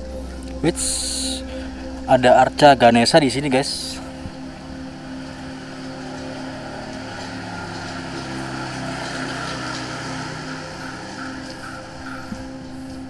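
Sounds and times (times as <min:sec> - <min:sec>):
engine rising in pitch: 0:00.0 - 0:13.0
vehicle engines running: 0:00.0 - 0:13.0.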